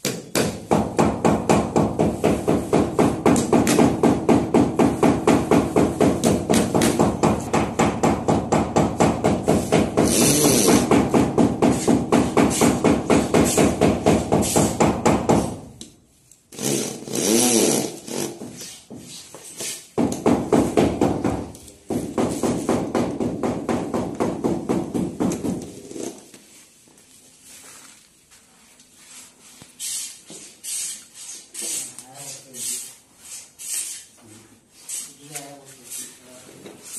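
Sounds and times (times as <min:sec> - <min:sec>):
electric drill driving screws: 0:10.0 - 0:10.9, 0:16.5 - 0:18.4.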